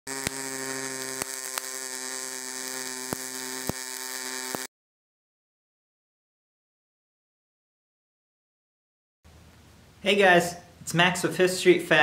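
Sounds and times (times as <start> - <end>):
welding arc buzzing: 0.0 - 4.7
sharp pops: 0.1 - 2.0, 2.7 - 4.7.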